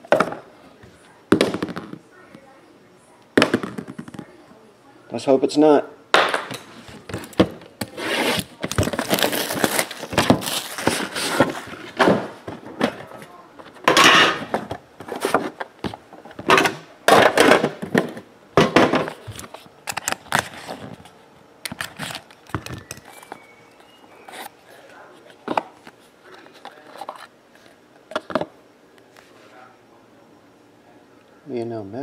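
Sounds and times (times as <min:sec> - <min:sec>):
cardboard box scrapes and rustles: 0:07.9 - 0:09.8.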